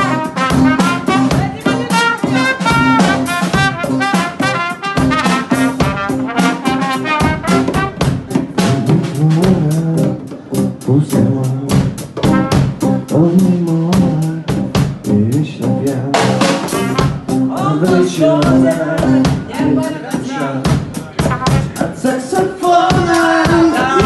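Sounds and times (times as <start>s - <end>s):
trumpet melody: 0.0s - 9.4s, 12.2s - 14.3s, 15.8s - 19.2s, 21.2s - 24.0s
bass line: 0.0s - 24.0s
drum kit beat: 0.0s - 24.0s.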